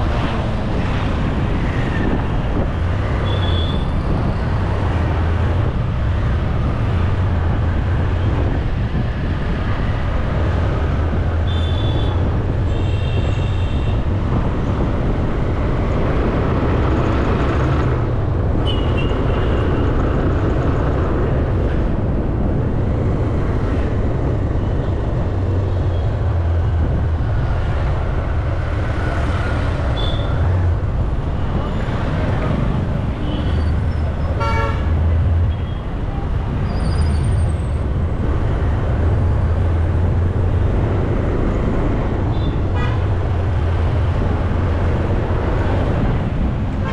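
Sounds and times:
road and wind noise: 0:00.0 - 0:46.9
vehicle horns beeping: 0:18.6 - 0:19.6, 0:30.0 - 0:30.4, 0:34.4 - 0:34.9.

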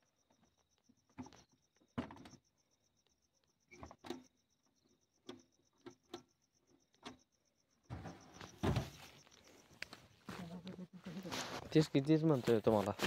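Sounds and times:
cricket chirping: 0:00.0 - 0:13.0
rustle with a thump: 0:07.9 - 0:09.3.

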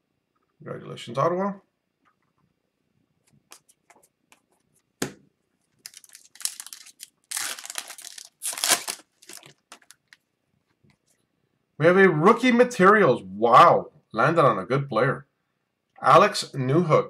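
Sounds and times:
foil wrapper tearing and crinkling: 0:05.8 - 0:10.2.

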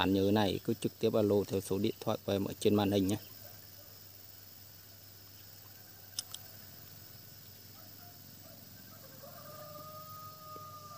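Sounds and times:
steady high hiss: 0:00.0 - 0:10.9
sharp clicks: 0:06.1 - 0:06.4.

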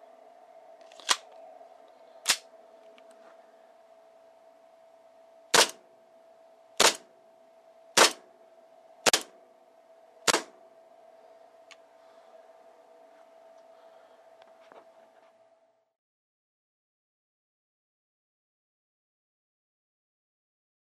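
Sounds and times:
airsoft pistol shots: 0:05.5 - 0:05.8, 0:06.8 - 0:07.1, 0:08.0 - 0:08.2, 0:09.0 - 0:09.4, 0:10.3 - 0:10.6.

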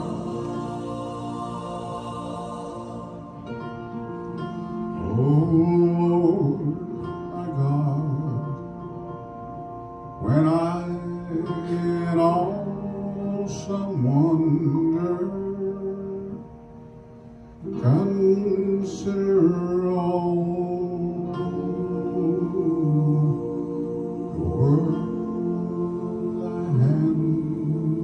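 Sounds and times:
sustained instrumental accompaniment: 0:00.0 - 0:28.0
man singing into a microphone: 0:05.0 - 0:08.7, 0:10.2 - 0:16.4, 0:17.6 - 0:28.0.

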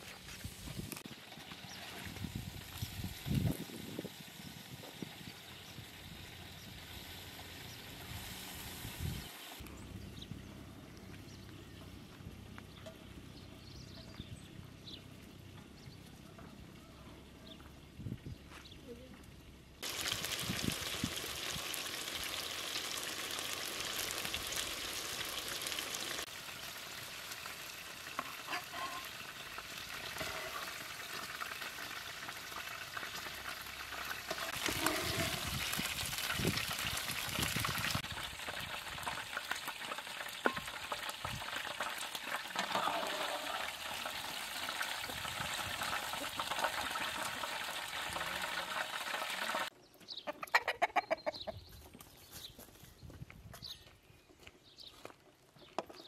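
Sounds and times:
patties sizzling in a pan: 0:19.8 - 0:49.7
metal spatula clinks and scrapes: 0:28.5 - 0:29.1.

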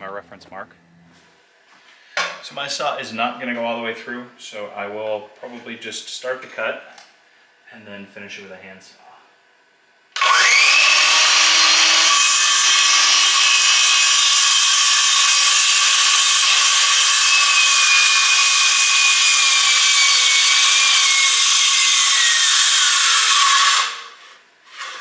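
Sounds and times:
circular saw cutting wood: 0:10.2 - 0:25.0.

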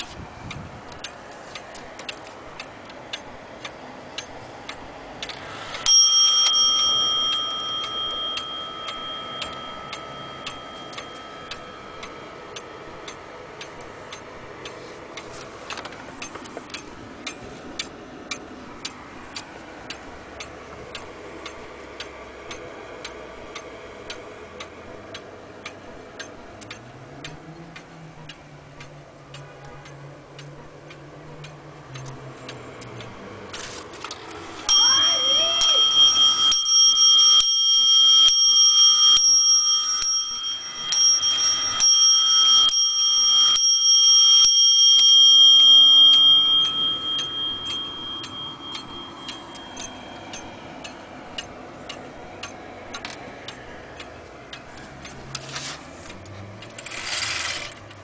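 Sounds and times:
wall clock ticking: 0:00.0 - 0:58.0
clock striking on bell: 0:05.8 - 0:14.3, 0:34.6 - 0:51.4.

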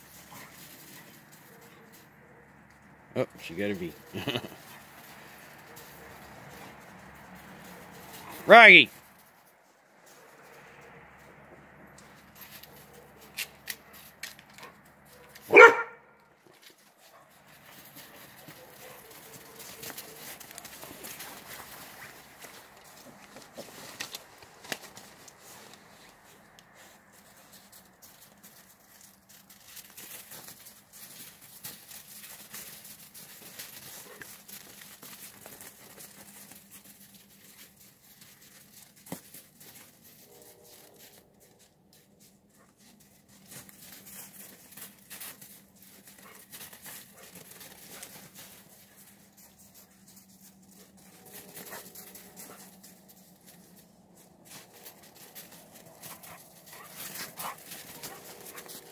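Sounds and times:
dogs' paws crunching in snow: 0:00.0 - 0:58.9.

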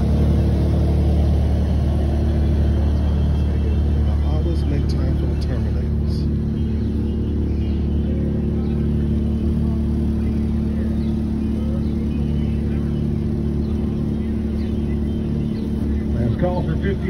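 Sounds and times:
engine droning: 0:00.0 - 0:17.0.

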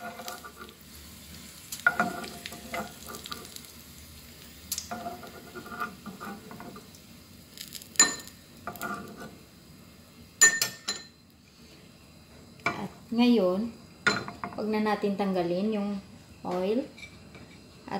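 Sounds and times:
oil sizzling: 0:00.0 - 0:16.5
metal ladle scraping a pan: 0:04.9 - 0:06.8.

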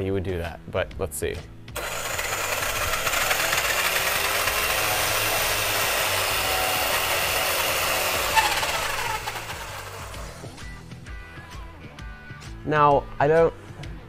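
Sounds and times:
electric motor whining: 0:01.8 - 0:10.6.

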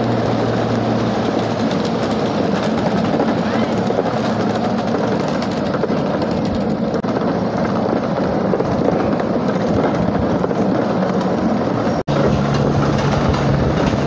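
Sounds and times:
miniature train rolling rumble: 0:00.0 - 0:14.0.

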